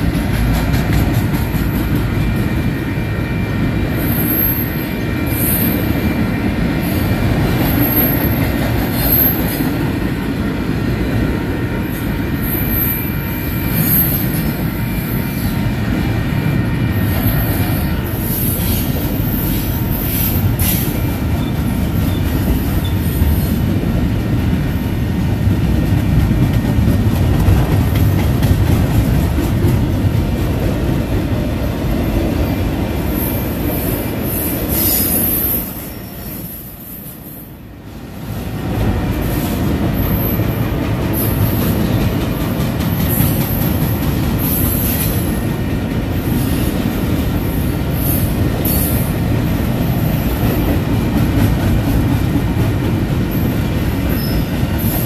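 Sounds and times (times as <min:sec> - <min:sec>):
train wheels rumbling on rails: 0:00.0 - 0:55.0
wheel squeals: 0:54.1 - 0:55.0.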